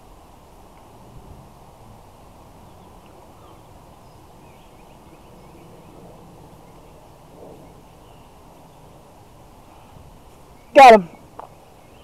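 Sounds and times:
low wind noise: 0:00.0 - 0:12.0
faint birds chirping: 0:00.6 - 0:12.0
soft rustle: 0:08.3 - 0:11.7.

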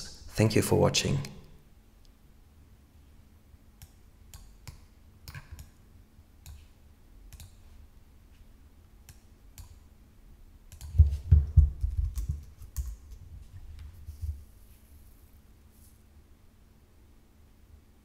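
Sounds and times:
mouse and keyboard clicks: 0:03.8 - 0:05.8, 0:07.3 - 0:07.6, 0:09.1 - 0:09.8.

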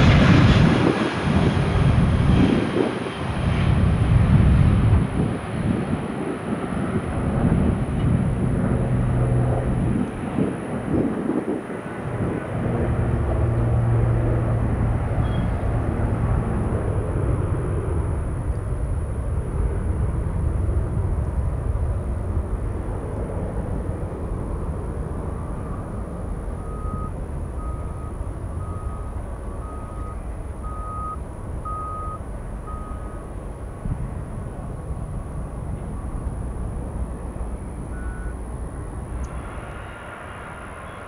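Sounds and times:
jet engine rumble: 0:00.0 - 0:41.0
reversing alarm beeps: 0:25.6 - 0:33.3, 0:37.8 - 0:38.4.

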